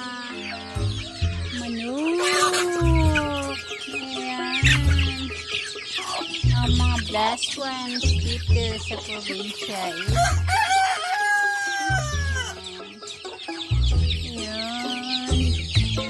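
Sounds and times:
chickens clucking: 0.0s - 16.0s
background music with low beat: 0.7s - 11.1s, 11.7s - 16.0s
rooster crowing: 10.1s - 12.6s.

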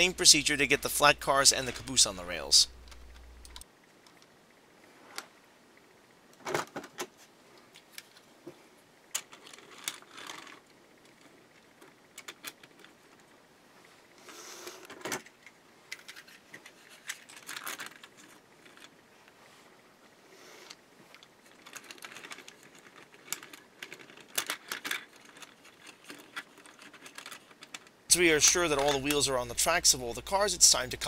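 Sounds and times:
plastic clicks and rattles: 9.1s - 13.3s, 14.8s - 19.0s, 21.1s - 28.0s.

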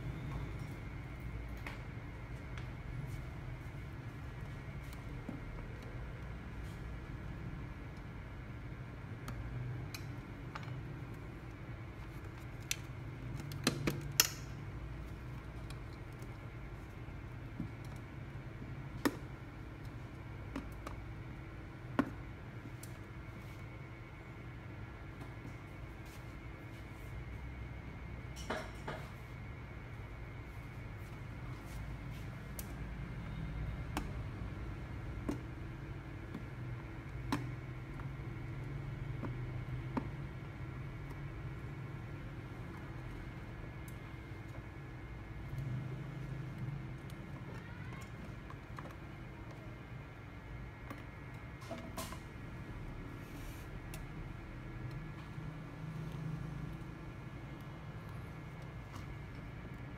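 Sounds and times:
steady low hum: 0.0s - 59.9s
pry tool clicks and taps: 13.4s - 14.5s.

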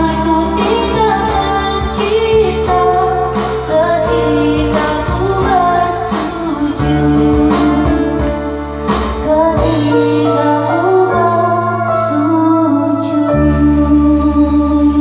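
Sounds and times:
backing track with guitar: 0.0s - 11.8s
woman singing into microphone: 0.0s - 15.0s.

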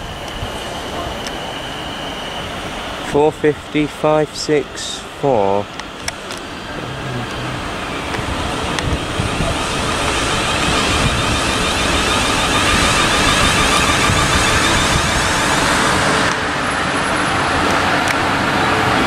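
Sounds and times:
electric train passing: 0.0s - 19.0s.

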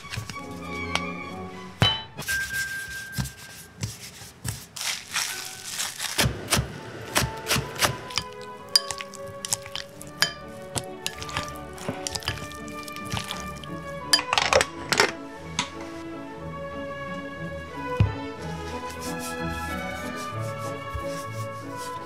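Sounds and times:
soft background music: 0.0s - 4.3s, 5.1s - 22.0s
utensils and dishes clinking: 7.4s - 15.8s.

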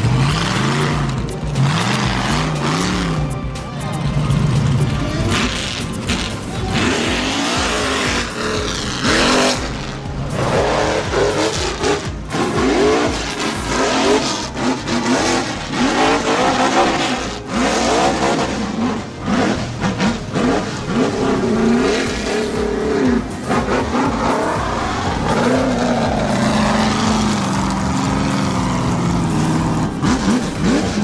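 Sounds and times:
buggy engine revving hard: 0.0s - 31.0s.

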